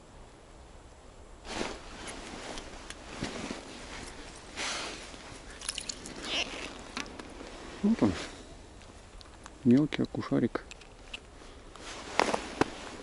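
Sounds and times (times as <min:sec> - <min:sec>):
jacket and gloves rustling: 0:01.4 - 0:09.5, 0:10.9 - 0:13.0
small clicks of fishing gear: 0:08.8 - 0:11.4.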